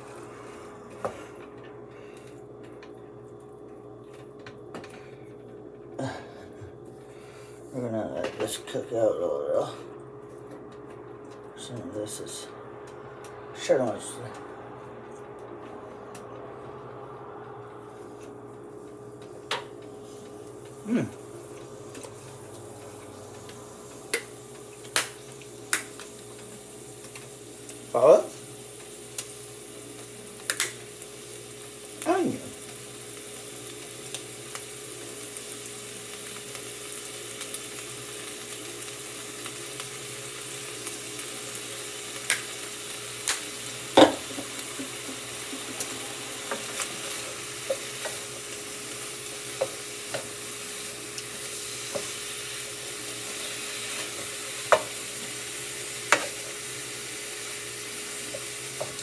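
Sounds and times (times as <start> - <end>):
meat sizzling in a frying pan: 18.5 - 59.0.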